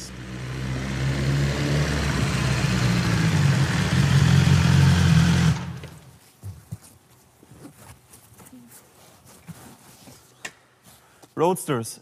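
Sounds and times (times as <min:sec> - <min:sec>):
motorcycle engine running: 0:00.0 - 0:06.1.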